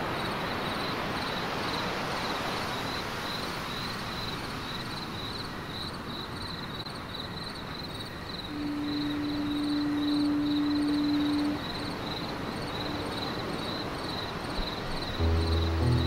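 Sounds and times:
wind: 0.0s - 16.0s
steady low tone: 8.5s - 13.6s, 15.1s - 16.0s
ship engine noise: 8.5s - 14.0s, 15.2s - 16.0s
high chirp: 15.2s - 16.0s.

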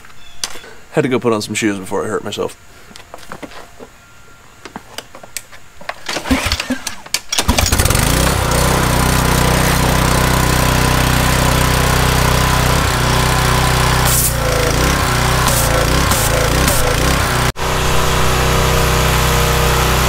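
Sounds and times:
small gas engine running: 7.4s - 20.0s.

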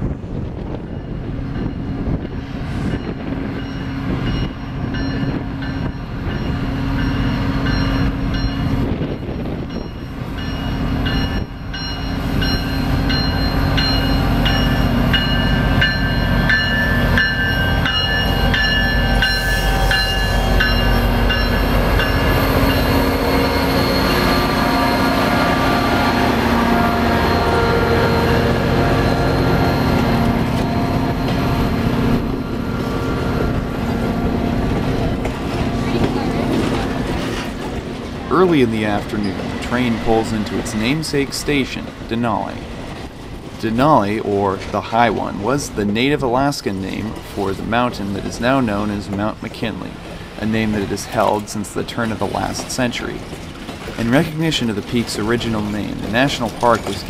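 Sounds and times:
diesel locomotive engine hum: 0.0s - 57.0s
train cars rolling: 0.0s - 57.0s
high-pitched steel wheel squeal: 18.2s - 26.0s.

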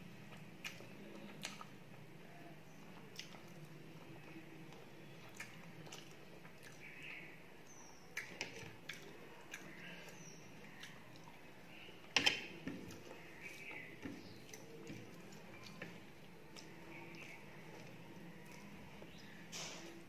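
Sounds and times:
wet smacking and chewing: 0.3s - 1.8s, 2.8s - 7.2s, 8.1s - 11.5s, 12.7s - 19.4s.

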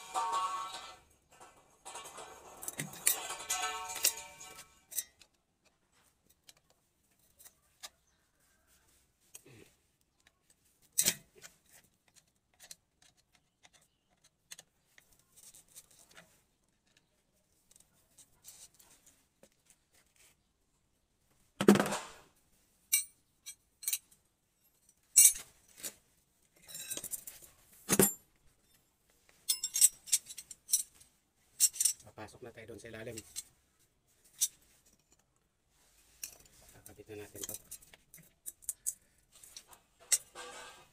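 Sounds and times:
loud clanks of tools: 0.0s - 5.2s, 39.6s - 40.9s
steel tools clinking: 0.0s - 5.4s, 22.9s - 25.9s, 26.6s - 28.8s, 29.4s - 31.0s, 31.6s - 32.1s, 36.2s - 40.9s.

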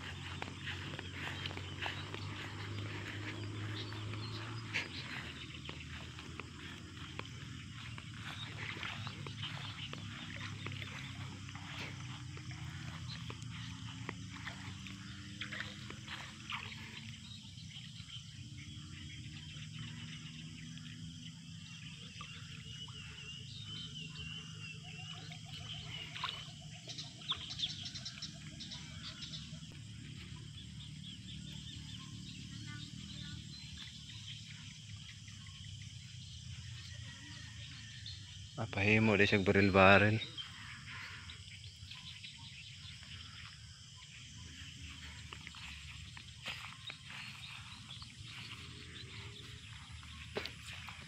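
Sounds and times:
bare feet splashing in water: 0.0s - 35.1s, 39.4s - 51.0s
faint bird calls: 21.6s - 51.0s.

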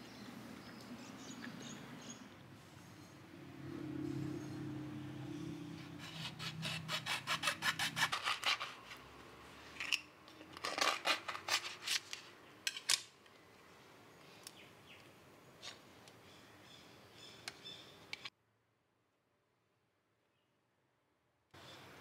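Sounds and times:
cutting and scraping: 5.5s - 9.1s, 10.5s - 12.3s
knife sawing through fruit rind: 5.8s - 9.0s, 10.7s - 11.9s.

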